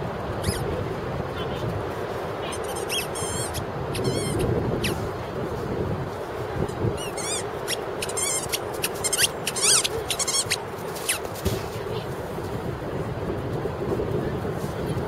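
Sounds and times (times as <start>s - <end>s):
dog whining: 2.5s - 5.0s, 7.0s - 10.6s.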